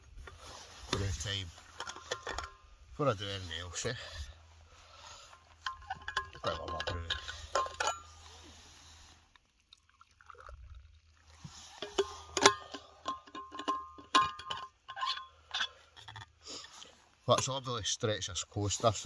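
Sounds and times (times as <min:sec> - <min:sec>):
metal lid and cup clinking: 0:01.7 - 0:02.6, 0:05.6 - 0:08.2, 0:11.7 - 0:16.3.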